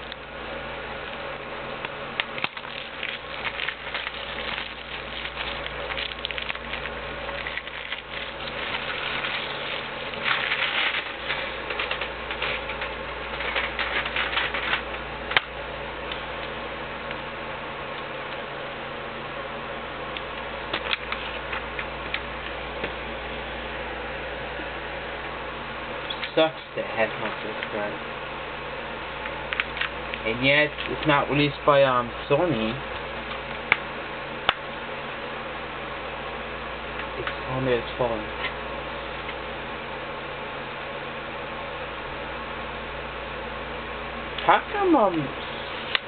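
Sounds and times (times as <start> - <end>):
cellophane wrap crackling: 2.2 - 15.5.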